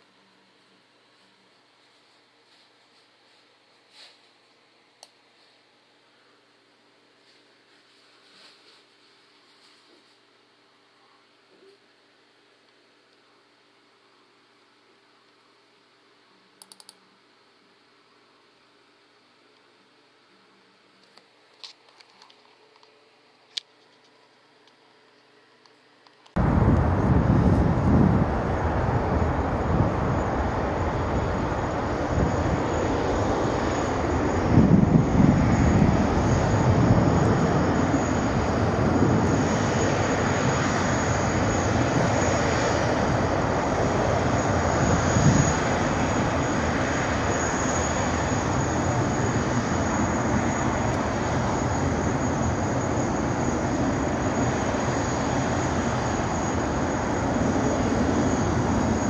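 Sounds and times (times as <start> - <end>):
jet airliner taxiing: 26.4 - 59.0.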